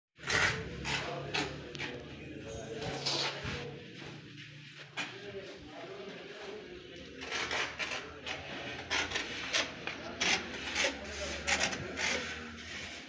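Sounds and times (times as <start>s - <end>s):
trowel scraping mortar on tile: 0.2s - 3.7s, 7.0s - 13.0s.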